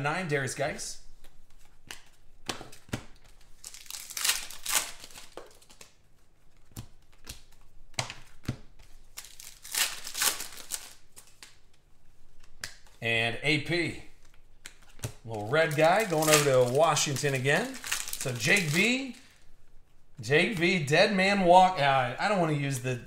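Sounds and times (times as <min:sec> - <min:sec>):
cards rustling and crinkling: 0:01.1 - 0:13.0, 0:14.1 - 0:19.6, 0:20.2 - 0:22.8
cards clicking and tapping: 0:01.2 - 0:03.5, 0:05.0 - 0:09.3, 0:14.2 - 0:18.8.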